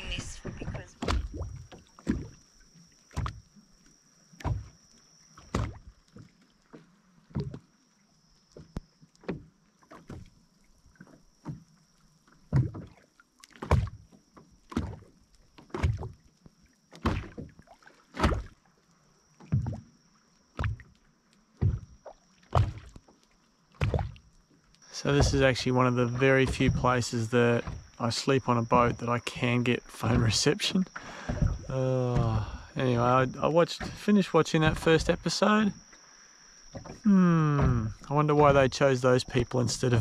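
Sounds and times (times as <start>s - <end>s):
waves knocking against boat hull: 25.0s - 36.0s, 36.7s - 40.0s.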